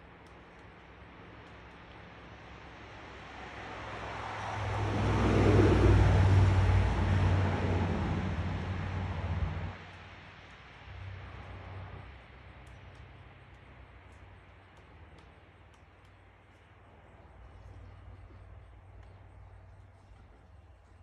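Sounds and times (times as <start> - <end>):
vehicle passing by: 2.8 - 12.3.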